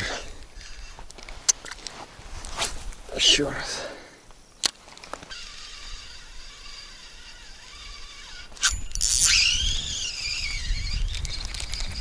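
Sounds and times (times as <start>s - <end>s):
spinning reel whirring: 5.3s - 12.0s.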